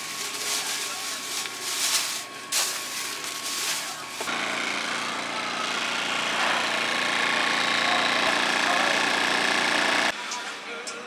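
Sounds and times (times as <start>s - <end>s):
plastic bag rustling: 0.0s - 4.3s
engine running: 0.0s - 10.2s.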